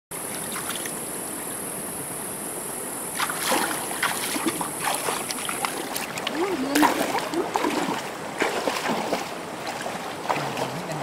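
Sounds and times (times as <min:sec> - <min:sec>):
stream flowing: 0:00.1 - 0:11.0
water splashing: 0:00.2 - 0:01.0, 0:03.1 - 0:11.0.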